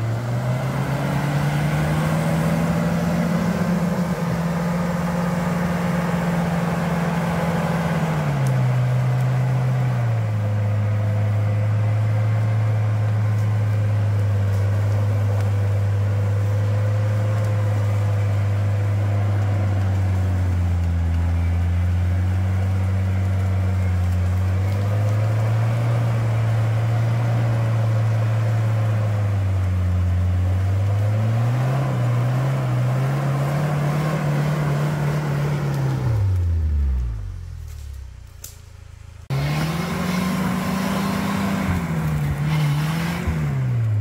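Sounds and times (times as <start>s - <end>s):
vehicle engine running under load: 0.0s - 44.0s.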